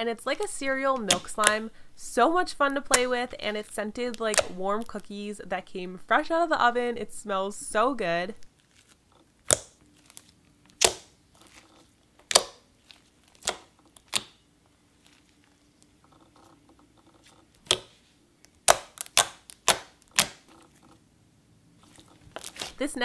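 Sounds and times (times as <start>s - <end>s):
air pockets popping in slime: 0.9s - 1.6s, 2.6s - 5.1s, 8.6s - 20.8s, 21.8s - 22.8s
slime being stretched by hand: 8.5s - 21.0s, 21.8s - 22.8s.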